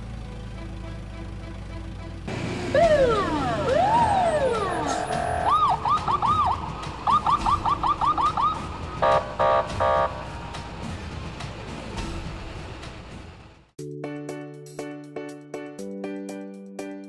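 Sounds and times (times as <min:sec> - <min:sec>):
emergency siren wailing: 0:02.3 - 0:10.4
honk-like blast: 0:04.8 - 0:05.7, 0:09.0 - 0:10.3.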